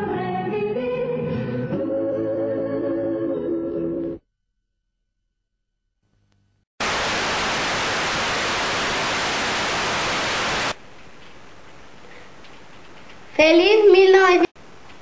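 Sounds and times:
television static hiss: 6.8 - 15.0.

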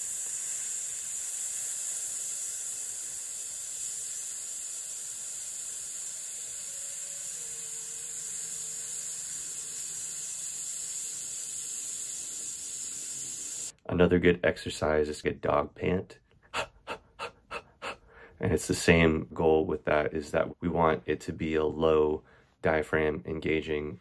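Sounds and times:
man hissing through teeth: 0.0 - 13.7, 16.4 - 18.2.

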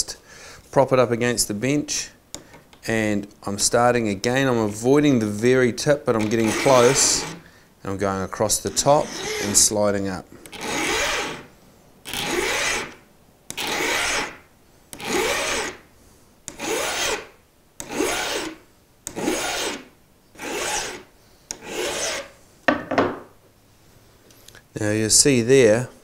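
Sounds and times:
hand file filing metal hook: 6.1 - 7.4, 8.5 - 9.8, 10.5 - 11.5, 12.1 - 14.4, 15.0 - 15.8, 16.5 - 19.8, 20.4 - 22.3.

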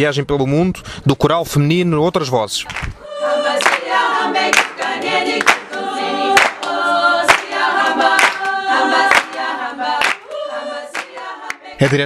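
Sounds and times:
female choir singing a cappella: 3.0 - 12.0
sharp hand claps: 3.6 - 3.9, 4.5 - 12.0.

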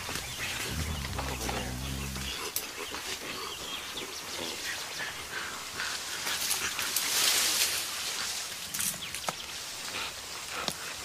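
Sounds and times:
gorilla sounds: 0.0 - 3.5
noisy rustle: 6.3 - 9.9.

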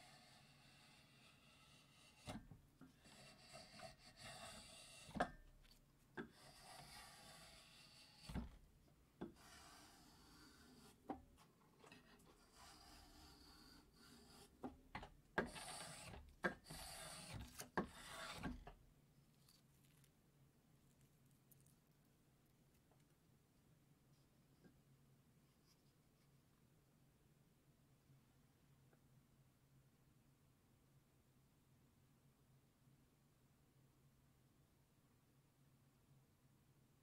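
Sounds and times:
spokeshave scraping wood: 0.0 - 18.8
spokeshave shaving a carrot: 0.0 - 20.2.

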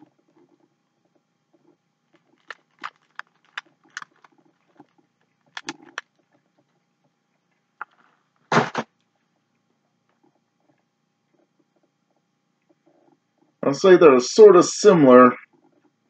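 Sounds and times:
person chewing: 2.2 - 4.9, 5.5 - 6.1.

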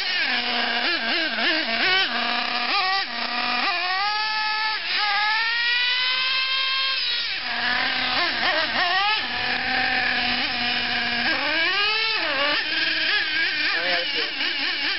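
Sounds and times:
nitro engine revving: 0.0 - 14.9.

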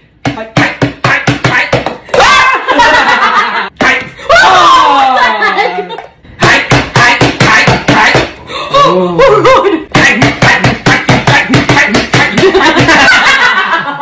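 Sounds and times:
people laughing: 2.4 - 3.8, 4.9 - 6.2, 12.3 - 14.0.

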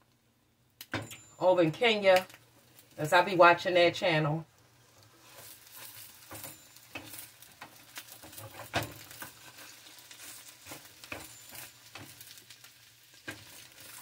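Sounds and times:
light sizzle: 0.0 - 14.0
spatula scraping frying pan: 4.8 - 14.0.

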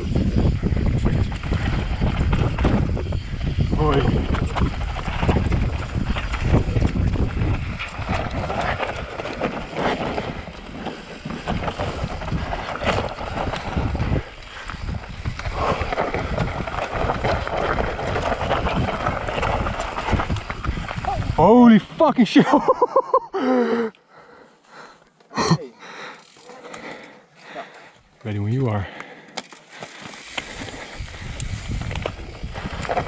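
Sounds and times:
wind noise on microphone: 0.0 - 21.7, 30.3 - 33.0
bike tyres rolling over dirt: 0.0 - 23.7, 24.3 - 33.0.

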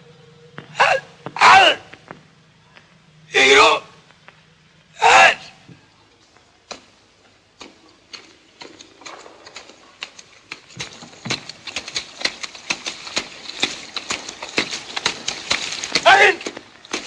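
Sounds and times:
boots squelching through mud: 6.6 - 17.0.

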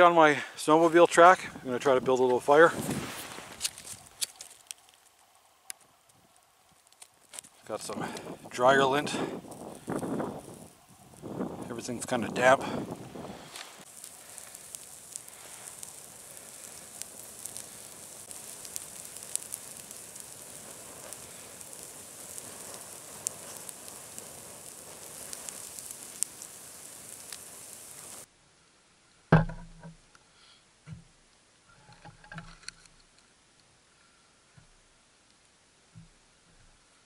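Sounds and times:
campfire crackling and popping: 0.0 - 28.3
loud thump: 29.3 - 29.9.

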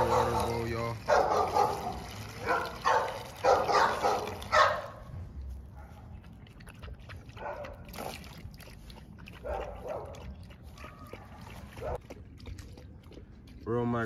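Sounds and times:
dog barking: 0.0 - 5.1, 7.4 - 7.8, 9.4 - 12.0
puppy lapping water: 0.0 - 14.0.

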